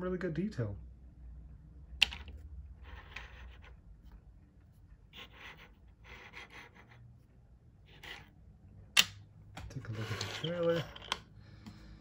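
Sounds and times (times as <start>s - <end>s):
toy scraping on tabletop: 2.8s - 3.8s, 5.1s - 7.0s, 7.8s - 8.4s, 9.8s - 11.2s.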